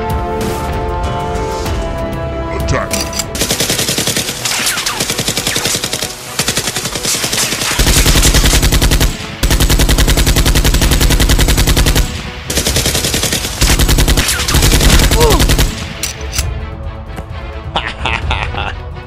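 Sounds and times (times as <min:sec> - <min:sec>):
machine-gun sound effects: 0:03.4 - 0:15.8.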